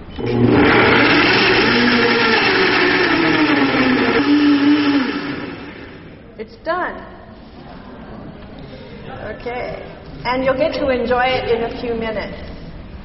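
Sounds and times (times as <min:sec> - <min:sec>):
countertop blender running: 0:00.0 - 0:06.2.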